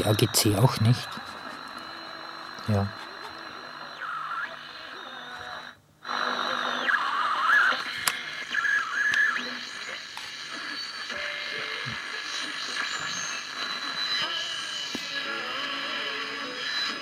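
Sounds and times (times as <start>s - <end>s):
radio hiss: 0.0s - 17.0s.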